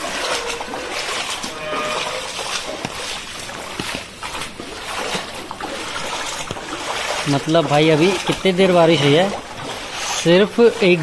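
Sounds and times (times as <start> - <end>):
floodwater splashing and dripping: 0.0 - 11.0.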